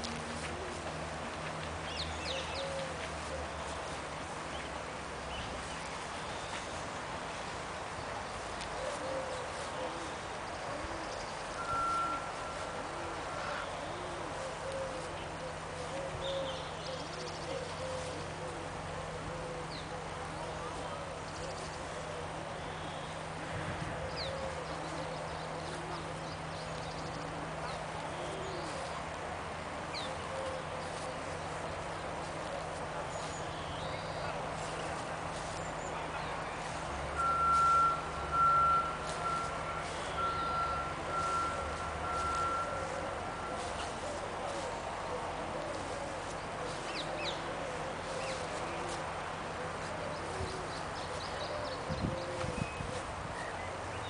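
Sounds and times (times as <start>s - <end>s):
soft low hooting calls: 0.0s - 54.0s
bird chirping: 33.1s - 44.6s.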